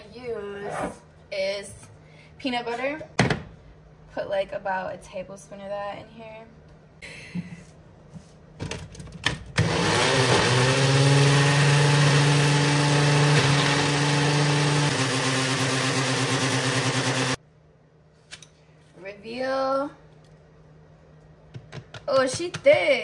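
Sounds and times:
blender motor running: 9.6s - 17.4s.

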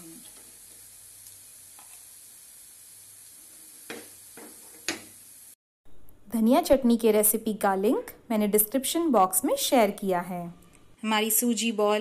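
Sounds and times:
oil sizzling faintly: 0.0s - 5.6s.

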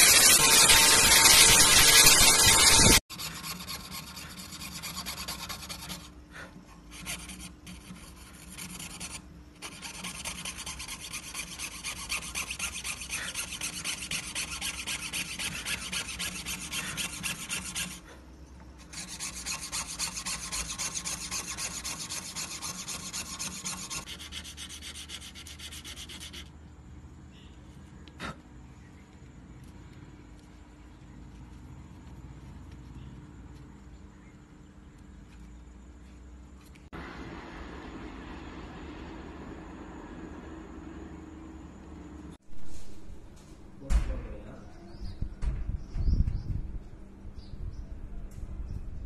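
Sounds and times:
rubbing on sandpaper: 6.9s - 18.2s, 18.9s - 26.5s.

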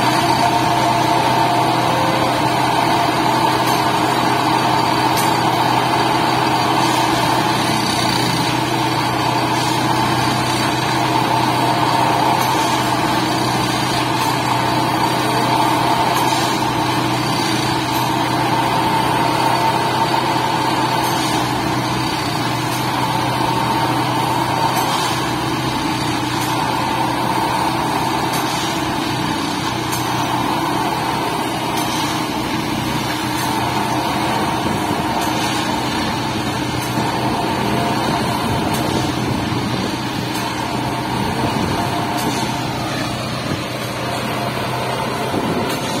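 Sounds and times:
machine engine and hydraulics drone: 0.0s - 46.0s.

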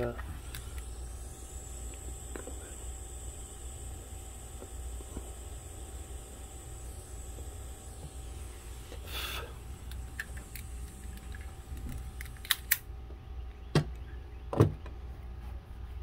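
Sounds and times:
faint high whine: 0.0s - 14.8s
steady low hum: 0.0s - 16.0s
sharp clicks: 0.1s - 0.9s, 9.8s - 12.9s
short hiss: 0.3s - 12.8s.

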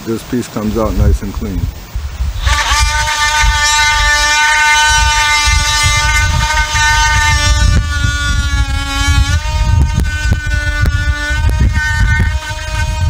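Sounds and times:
multi-tool cutting wood: 2.4s - 13.0s.

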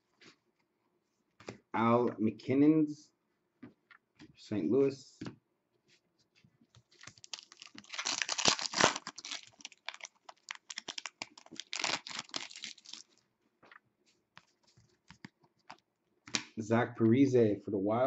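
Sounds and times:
cards clicking and rustling: 6.8s - 13.2s
foil wrapper tearing and crinkling: 6.8s - 13.2s.

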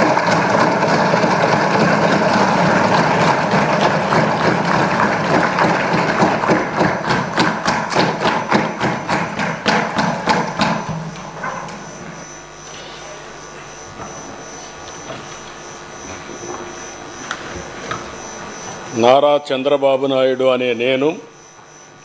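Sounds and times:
crowd applauding: 0.0s - 12.0s
thumping on desks: 0.0s - 12.3s.

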